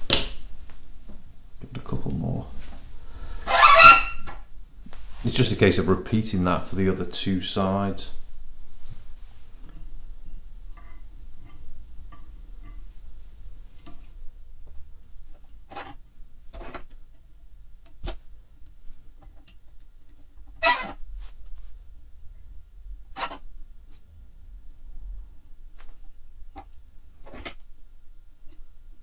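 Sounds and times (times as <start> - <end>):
faint rustling: 0.0 - 17.0, 20.3 - 22.1.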